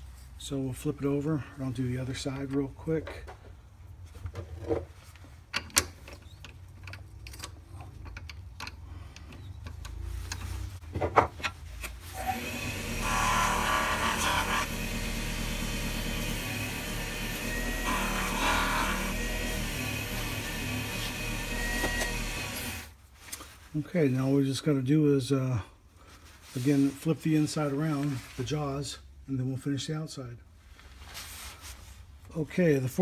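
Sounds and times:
rubbing hiss of polishing: 0:12.1 - 0:14.8, 0:17.4 - 0:19.2
lathe running: 0:12.1 - 0:22.9.

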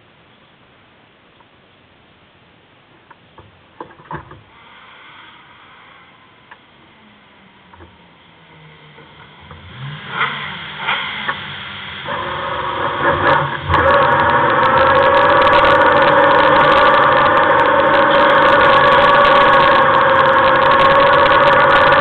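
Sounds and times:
knocks and clatters: 0:03.0 - 0:04.5
engine running: 0:04.6 - 0:22.0.

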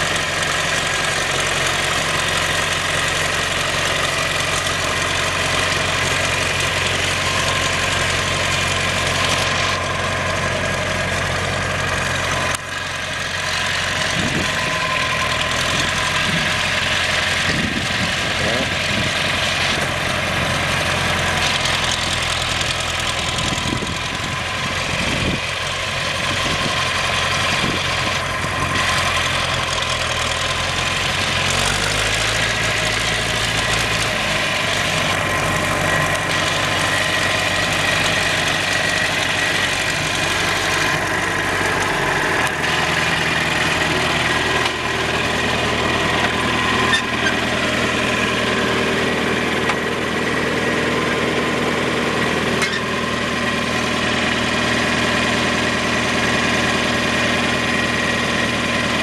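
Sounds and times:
diesel tractor engine idling: 0:00.0 - 0:59.0.

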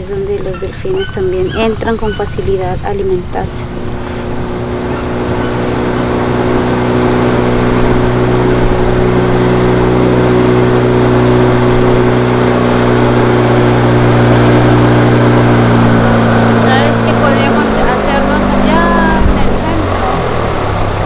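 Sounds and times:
outboard motor hum: 0:00.0 - 0:21.0
water rushing along hull: 0:00.0 - 0:21.0.

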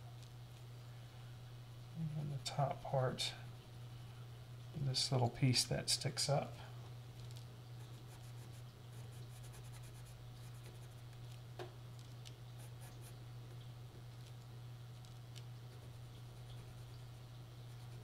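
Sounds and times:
steady low hum: 0:00.0 - 0:18.0
pencil scratching on paper: 0:07.9 - 0:11.0.

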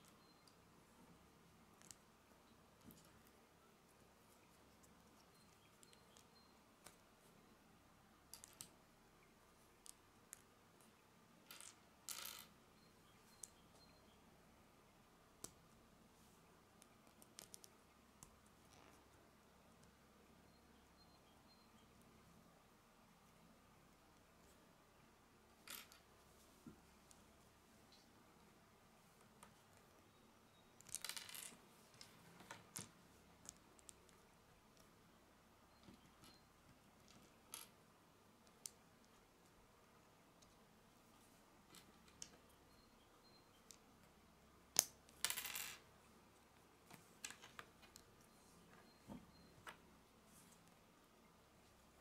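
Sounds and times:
plastic pieces clicking and rattling: 0:30.8 - 0:34.0.

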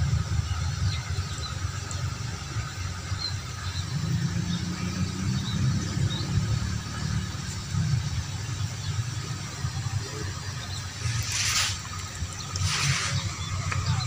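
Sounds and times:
distant diesel train rumble: 0:00.0 - 0:14.0.

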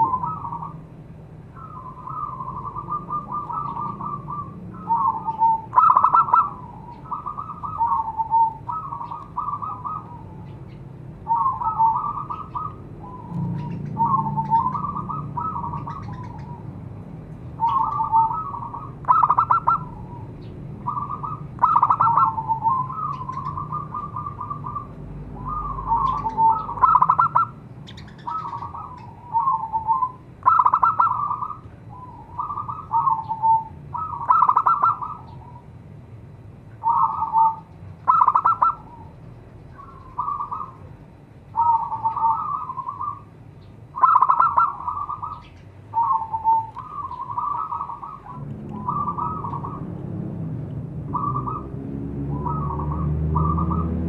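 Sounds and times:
dove cooing: 0:00.0 - 0:00.9, 0:01.6 - 0:16.9, 0:17.5 - 0:35.7, 0:36.8 - 0:43.3, 0:43.9 - 0:50.0, 0:51.0 - 0:51.7, 0:52.3 - 0:54.0.

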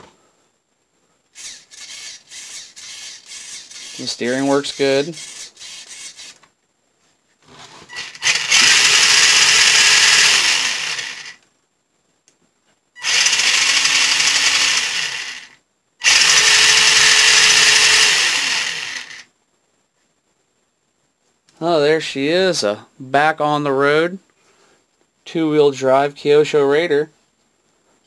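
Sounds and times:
electric motor revving whir: 0:07.9 - 0:11.4, 0:13.0 - 0:19.2.

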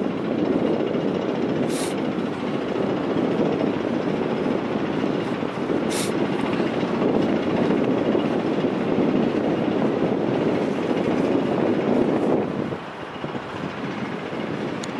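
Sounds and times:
wind buffeting microphone: 0:00.0 - 0:14.9
sharp hiss: 0:01.7 - 0:02.0, 0:05.9 - 0:06.2.

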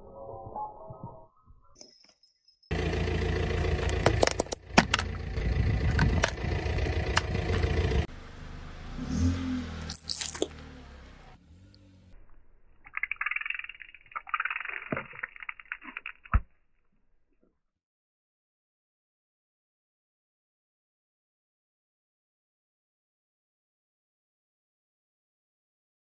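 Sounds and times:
low engine rumble: 0:02.7 - 0:12.7.

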